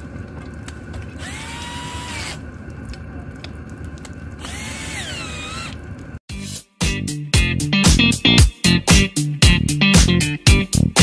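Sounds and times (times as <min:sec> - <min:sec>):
cordless drill motor whine: 0:01.1 - 0:02.4, 0:04.4 - 0:05.9.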